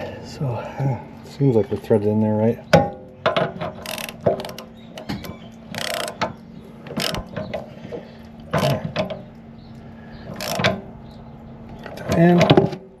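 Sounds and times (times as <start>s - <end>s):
faint hum: 0.0s - 12.2s
socket ratchet clicking: 5.7s - 6.3s, 10.4s - 10.8s.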